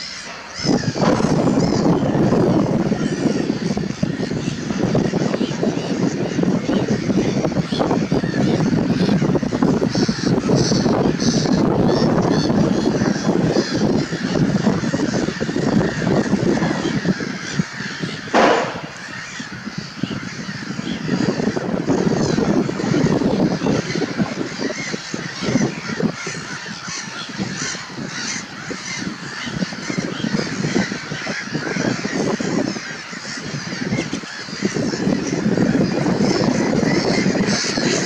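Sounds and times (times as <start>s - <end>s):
wetland birds calling: 0.0s - 38.0s
sharp loud sound: 18.3s - 19.0s.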